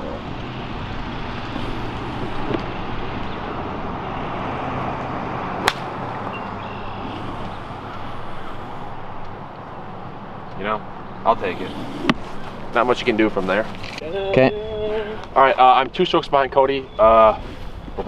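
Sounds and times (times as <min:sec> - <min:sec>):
outdoor background noise: 0:00.0 - 0:18.0
golf club striking ball: 0:05.6 - 0:07.1.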